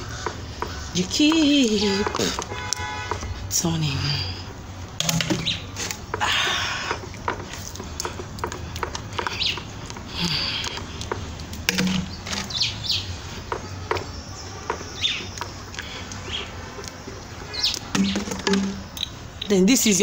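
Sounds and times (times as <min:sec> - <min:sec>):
bird chirps: 0:05.2 - 0:05.8, 0:09.2 - 0:09.7, 0:11.8 - 0:16.6, 0:17.5 - 0:19.6
clicks and knocks in plastic basin: 0:17.9 - 0:18.9.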